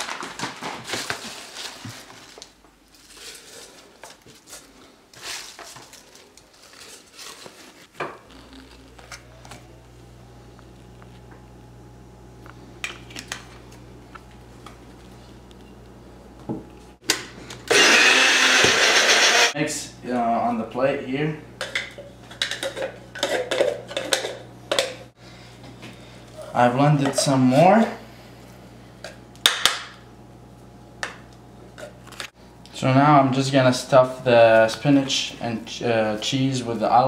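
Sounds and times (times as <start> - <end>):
blender chopping: 17.6 - 19.6.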